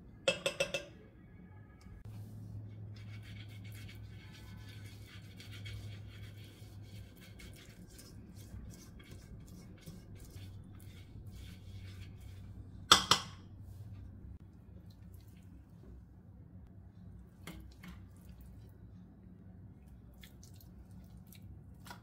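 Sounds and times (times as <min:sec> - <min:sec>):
brush scraping inside metal pot: 0:02.8 - 0:12.9.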